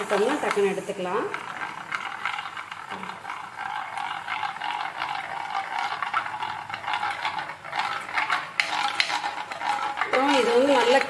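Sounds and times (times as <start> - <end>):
batter sizzling in hot oil: 0.0 - 11.0.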